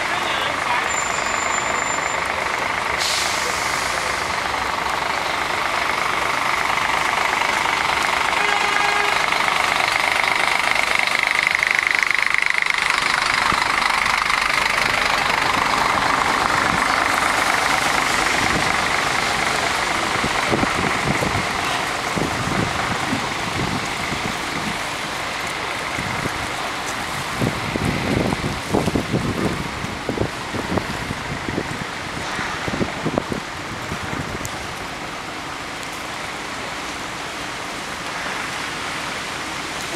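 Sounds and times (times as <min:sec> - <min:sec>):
coach engine: 0:00.0 - 0:38.6
vehicles hissing past on wet road: 0:00.0 - 0:39.9
wind thumping on microphone: 0:18.0 - 0:25.1, 0:26.0 - 0:34.8.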